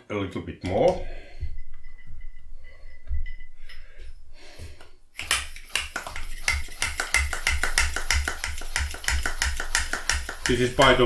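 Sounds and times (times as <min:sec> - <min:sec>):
bicycle pump strokes: 0:05.4 - 0:11.0.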